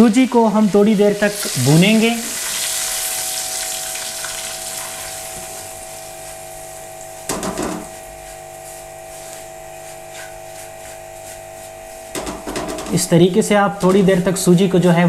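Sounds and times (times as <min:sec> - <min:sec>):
semolina sizzling in oil: 0:00.0 - 0:12.9
steady low hum: 0:00.0 - 0:15.0
spatula stirring scrape: 0:07.8 - 0:13.0.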